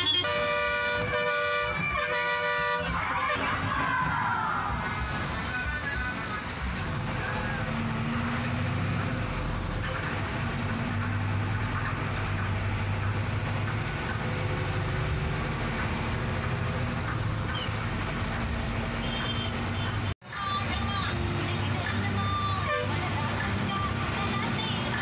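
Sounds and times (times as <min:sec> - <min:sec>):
bus engine drone: 0:00.0 - 0:25.0
tyre and road noise: 0:00.0 - 0:25.0.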